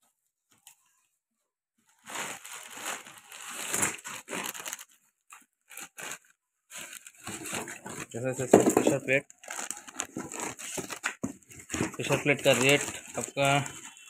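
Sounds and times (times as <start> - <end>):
plastic wrapping crinkling: 1.8 - 14.0
cardboard box rustling: 6.7 - 14.0.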